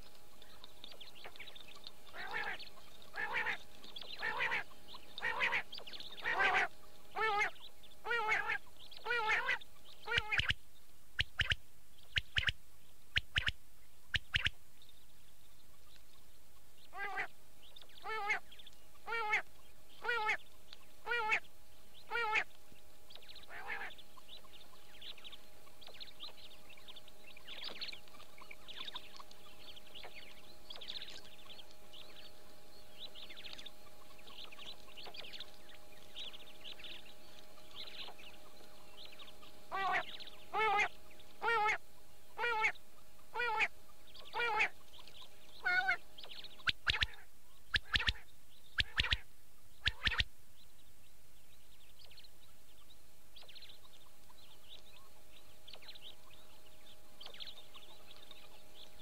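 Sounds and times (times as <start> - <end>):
steady low hum: 0.0 - 59.0
bird twittering: 0.3 - 10.6, 11.2 - 15.0, 16.8 - 22.5, 23.1 - 50.9
quail calling: 0.9 - 10.6, 11.2 - 14.6, 16.9 - 17.3, 18.0 - 22.5, 23.2 - 26.4, 39.2 - 50.3.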